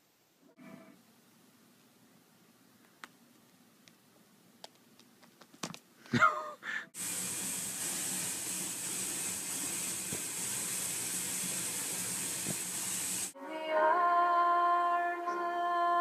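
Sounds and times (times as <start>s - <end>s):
tap water running into bathtub: 7.0s - 13.4s.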